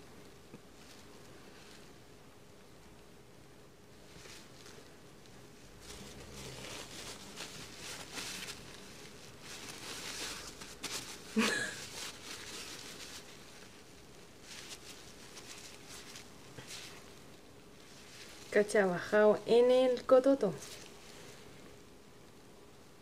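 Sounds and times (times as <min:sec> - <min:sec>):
tissue rustling against skin: 0:00.6 - 0:02.1, 0:03.8 - 0:22.0.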